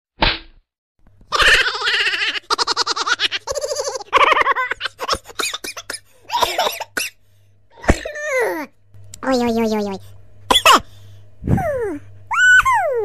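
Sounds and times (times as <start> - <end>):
faint low hum: 1.0 - 13.0
high-pitched laughter: 1.3 - 5.7, 11.6 - 13.0.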